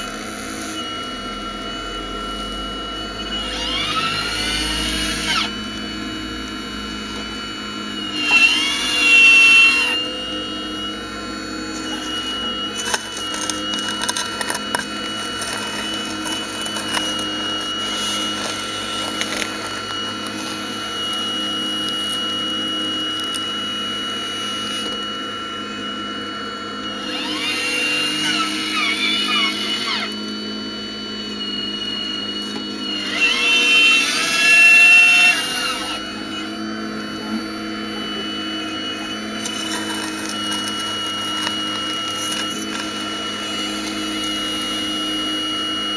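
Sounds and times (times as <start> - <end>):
model excavator motors whining: 0.0 - 45.9
bucket scraping through soil: 11.8 - 20.7.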